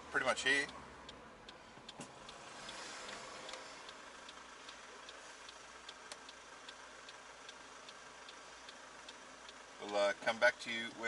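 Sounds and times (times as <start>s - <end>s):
faint engine idling: 0.0s - 11.0s
turn signal ticking: 0.0s - 11.0s.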